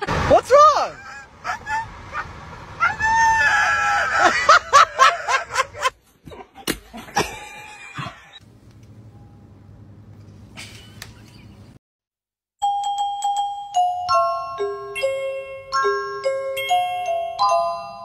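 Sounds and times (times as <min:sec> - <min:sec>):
low road rumble: 0:00.0 - 0:06.2.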